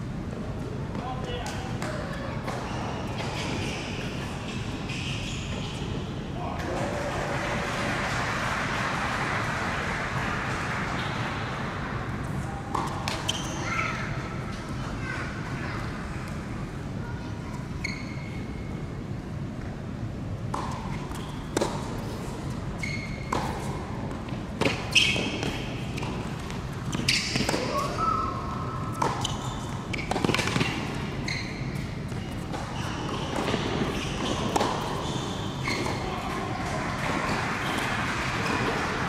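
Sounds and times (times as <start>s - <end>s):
tennis ball bouncing: 20.5s - 22.2s, 23.2s - 28.0s, 28.9s - 35.1s.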